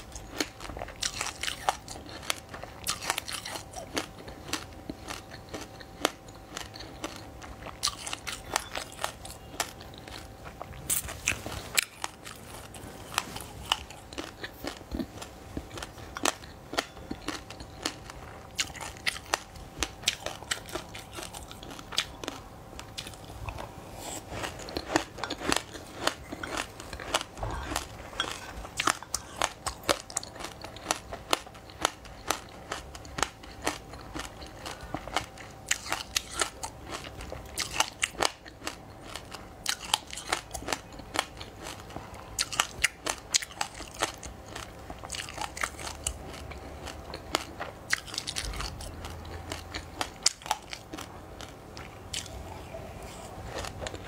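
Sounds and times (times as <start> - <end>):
crunchy chewing: 0.0 - 54.0.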